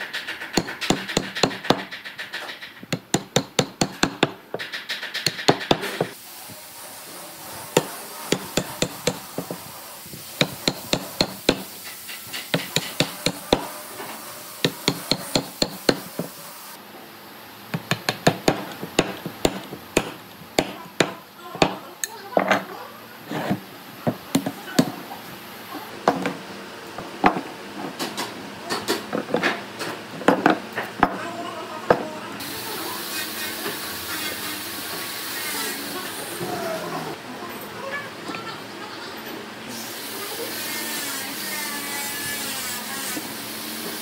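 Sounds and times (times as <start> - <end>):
mallet striking chisel in wood: 0.5 - 2.0, 2.9 - 4.6, 5.2 - 6.1, 7.8 - 9.6, 10.4 - 11.7, 12.5 - 13.7, 14.6 - 16.3, 17.8 - 21.8.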